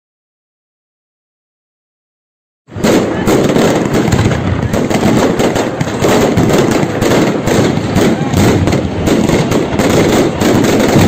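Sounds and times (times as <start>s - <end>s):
fireworks and firecrackers banging: 2.7s - 11.0s.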